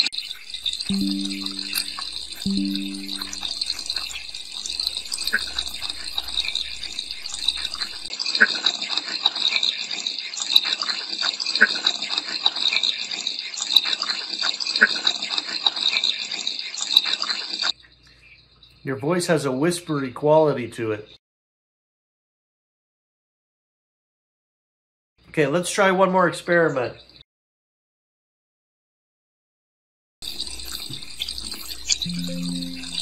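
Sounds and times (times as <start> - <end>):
running tap water hiss: 0.0 - 8.1, 30.2 - 33.0.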